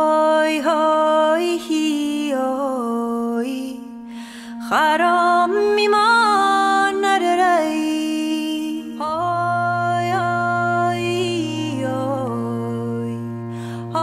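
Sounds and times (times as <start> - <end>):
slow sustained melody: 0.1 - 14.0
held drone: 4.4 - 14.0.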